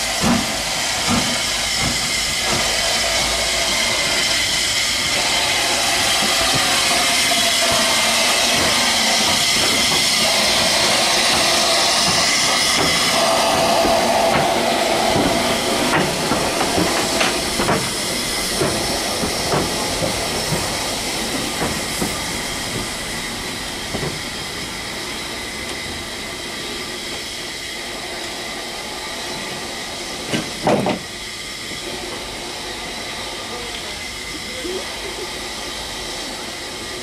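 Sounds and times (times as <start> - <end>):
steam locomotive hissing: 0.0 - 37.0
clanks and knocks from wheels: 6.1 - 23.0, 30.3 - 31.1.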